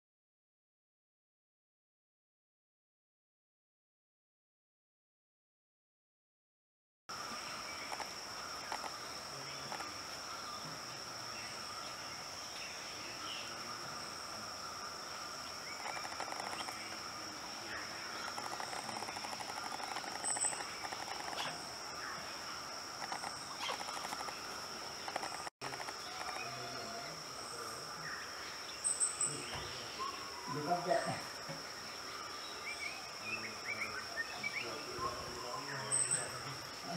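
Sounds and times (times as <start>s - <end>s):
high-pitched insect drone: 7.1s - 36.9s
short chirps and clicks: 25.0s - 26.4s.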